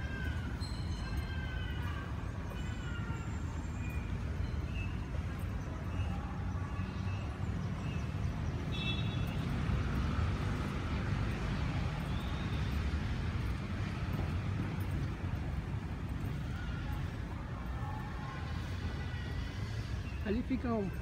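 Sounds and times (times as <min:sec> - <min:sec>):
street traffic rumble: 0:00.0 - 0:21.0.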